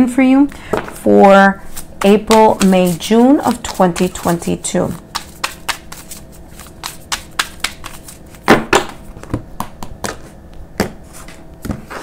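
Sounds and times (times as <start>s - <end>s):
cards shuffling clicks: 5.1s - 8.4s
cards slapping on table: 5.1s - 10.2s.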